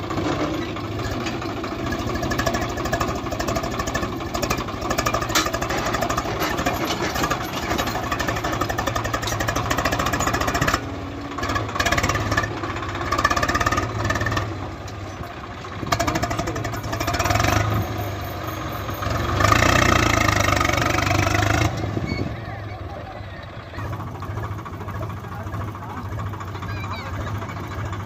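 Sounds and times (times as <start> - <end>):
tractor diesel engine under load: 0.0 - 28.0.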